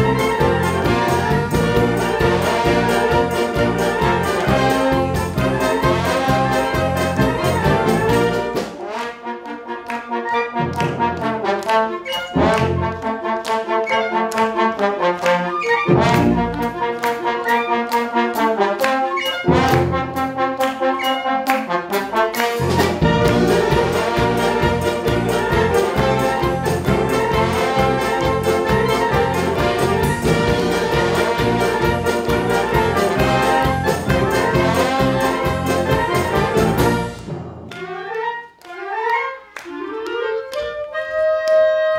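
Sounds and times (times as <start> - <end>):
steady drum beat: 0.0 - 8.8, 22.4 - 37.7
brass accented chords: 0.0 - 41.1
wind band playing: 0.0 - 41.9.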